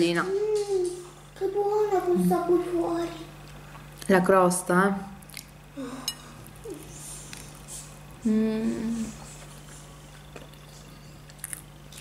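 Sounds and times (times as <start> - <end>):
steady low hum: 0.0 - 12.0
woman humming mmm: 8.2 - 9.3.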